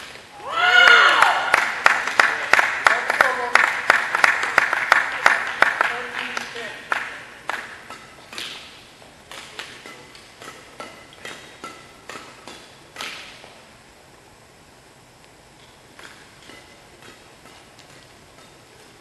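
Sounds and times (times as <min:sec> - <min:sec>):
spectators clapping: 0:00.8 - 0:07.9.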